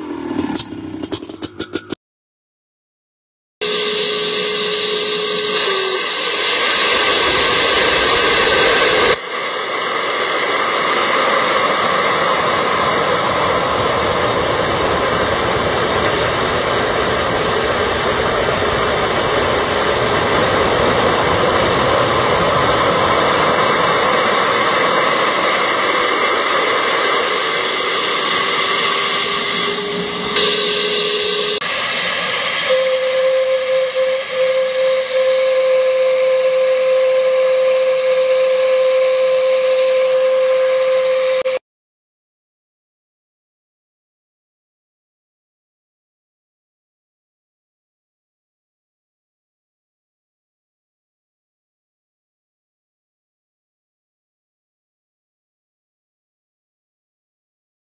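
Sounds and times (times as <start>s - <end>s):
air rushing through carburettor: 3.6s - 41.6s
fluttering turbulent airflow: 3.7s - 41.6s.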